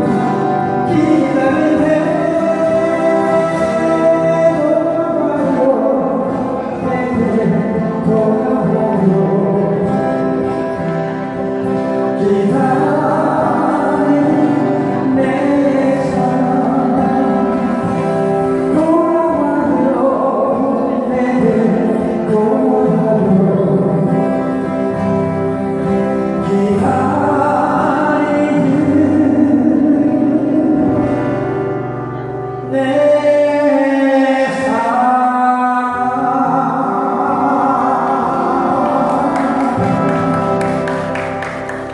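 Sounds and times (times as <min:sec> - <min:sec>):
people singing into microphones: 0:00.0 - 0:10.4, 0:32.8 - 0:40.5
strummed acoustic guitars: 0:00.0 - 0:41.9.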